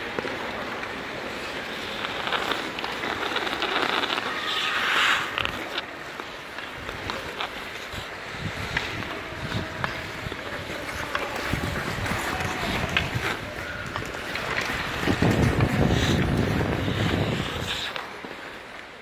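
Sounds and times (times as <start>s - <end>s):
ice skates scraping on ice: 0.0s - 19.0s
wind noise on microphone: 6.7s - 18.0s.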